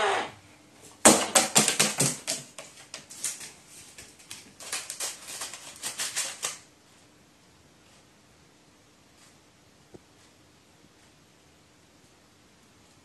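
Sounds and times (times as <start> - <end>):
paper crackling and rustling: 1.1 - 6.7.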